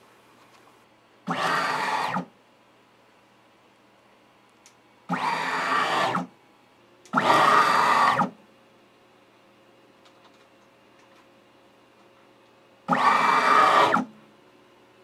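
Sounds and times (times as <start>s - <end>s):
stepper motor axis whining: 1.3s - 2.3s, 5.1s - 6.3s, 7.1s - 8.4s, 12.9s - 14.1s.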